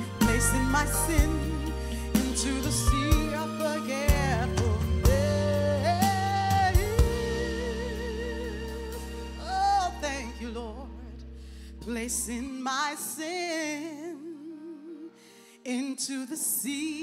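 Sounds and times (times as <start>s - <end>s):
woman singing gospel song: 0.0s - 11.2s, 11.8s - 17.0s
instrumental backing: 0.0s - 13.5s.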